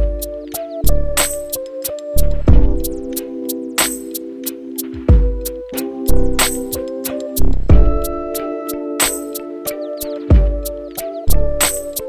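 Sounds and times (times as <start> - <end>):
deep bass hits: 7.7 - 8.1.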